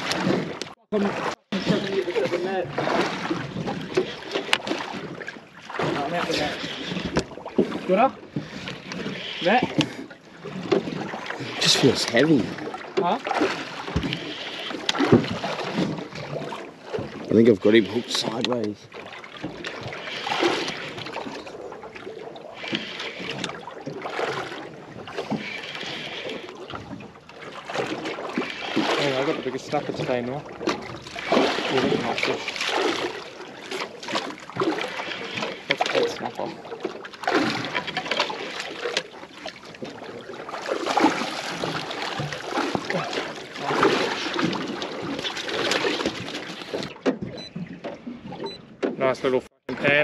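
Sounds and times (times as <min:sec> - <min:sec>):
water sloshing around boat: 0:00.0 - 0:50.0.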